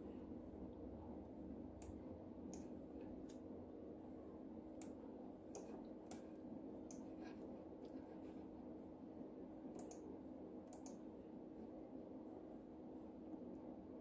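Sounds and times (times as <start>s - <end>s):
steady low hum: 0.0s - 14.0s
computer mouse clicks: 4.8s - 6.3s, 6.9s - 7.1s, 9.8s - 10.1s, 10.7s - 11.0s.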